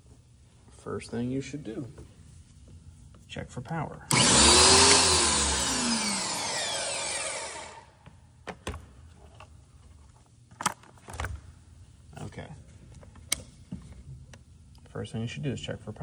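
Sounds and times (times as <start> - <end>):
pressure washer motor winding down: 4.1 - 7.9.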